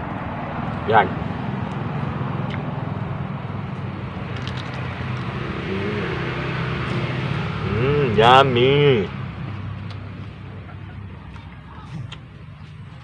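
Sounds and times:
low mechanical drone: 0.0s - 13.0s
chili being bitten and chewed: 2.4s - 2.7s, 3.7s - 5.4s, 9.5s - 10.4s, 11.2s - 13.0s.

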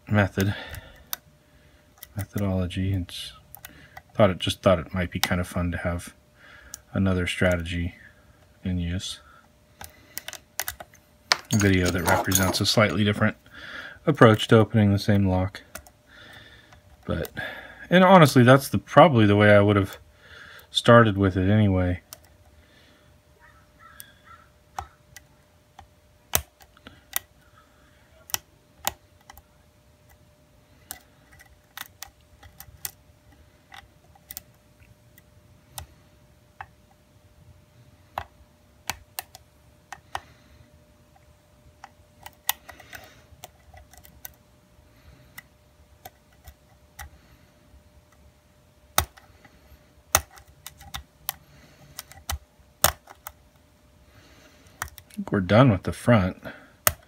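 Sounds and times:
faint steady hum: 0.0s - 57.0s
lock pick metallic clicks: 52.0s - 53.3s.

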